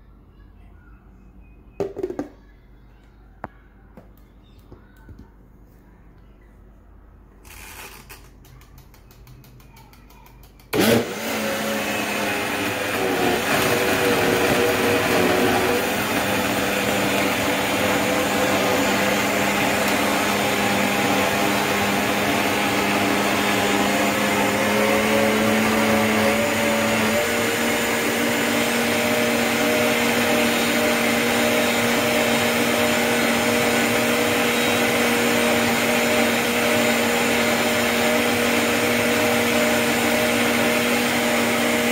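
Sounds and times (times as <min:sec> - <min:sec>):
blender motor running: 0:10.7 - 0:41.9.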